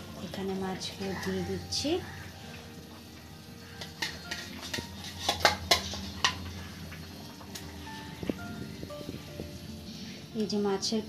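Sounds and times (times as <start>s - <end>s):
metal spatula clinking on pan: 3.8s - 6.4s.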